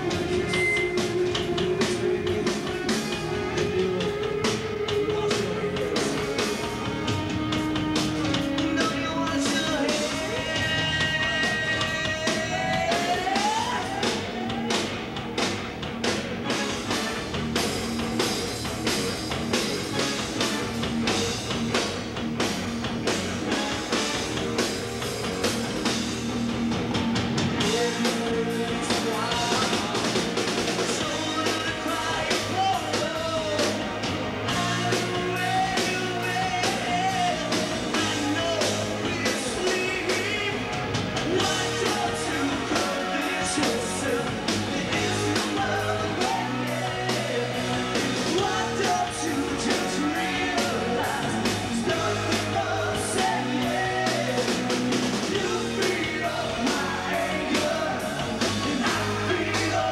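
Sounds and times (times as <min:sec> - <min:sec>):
drum kit beat: 0:00.0 - 0:59.9
electric guitar: 0:00.0 - 0:59.9
person singing: 0:08.2 - 0:14.8, 0:27.6 - 0:30.4, 0:34.5 - 0:59.9.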